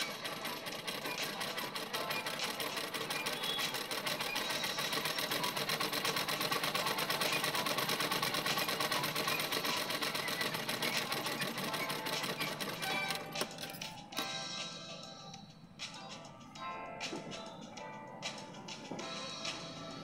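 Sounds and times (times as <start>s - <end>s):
sewing machine running: 0.0s - 14.0s.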